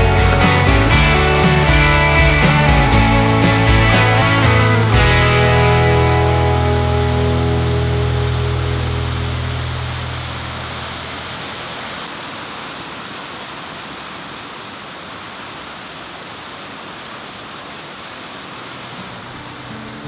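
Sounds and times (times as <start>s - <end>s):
water rushing: 0.0s - 20.0s.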